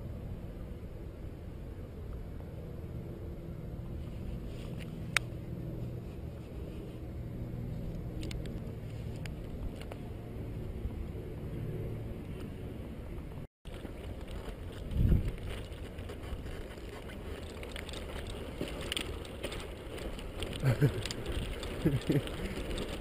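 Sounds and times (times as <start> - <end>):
bike clicks and rattles: 7.7 - 10.1, 13.7 - 23.0
bicycle tyres rumbling: 13.1 - 23.0.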